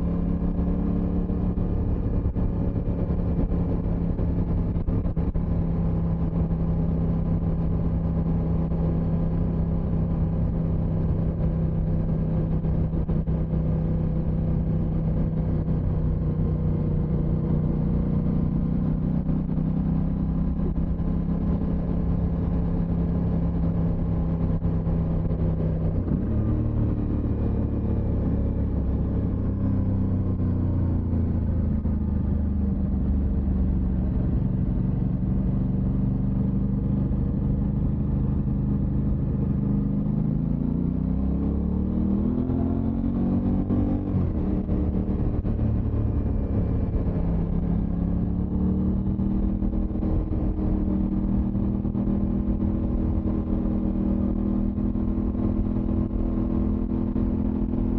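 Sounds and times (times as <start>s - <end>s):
motorcycle engine running: 0.0s - 57.9s.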